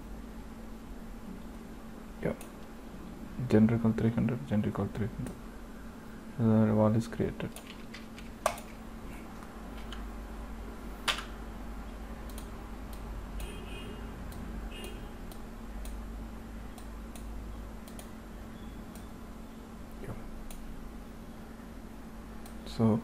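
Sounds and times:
low electrical hum: 0.0s - 23.0s
computer mouse clicks: 7.5s - 8.8s, 12.2s - 13.5s, 16.7s - 18.2s, 20.5s - 20.7s.

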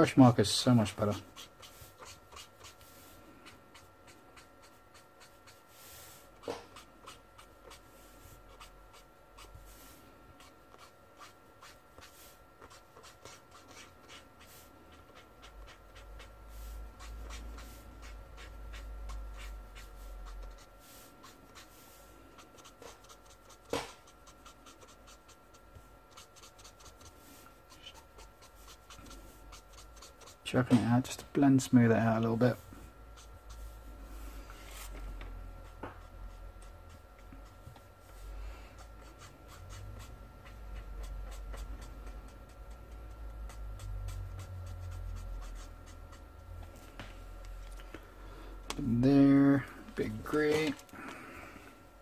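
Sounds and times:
faint high hum: 0.0s - 52.0s
marker scratching on paper: 0.8s - 30.4s, 33.1s - 33.8s, 38.8s - 46.6s.

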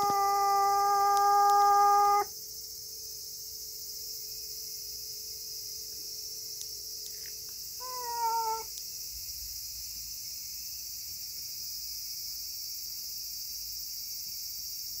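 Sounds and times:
cat meowing: 0.0s - 2.3s, 7.8s - 8.7s
insects chirring: 0.0s - 15.0s.

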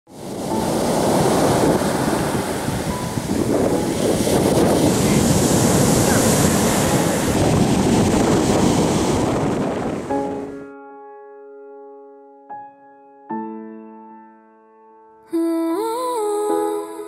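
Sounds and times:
sea surf breaking on shore: 0.1s - 10.6s.

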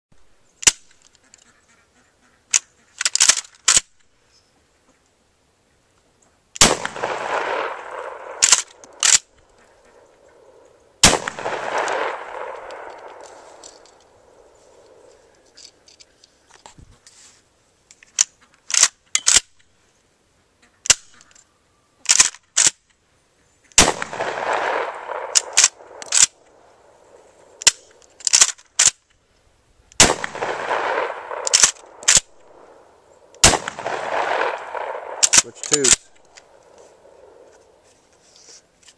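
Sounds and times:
loud shotgun shots with echo: 6.6s - 15.1s, 23.8s - 27.8s, 30.0s - 37.5s.

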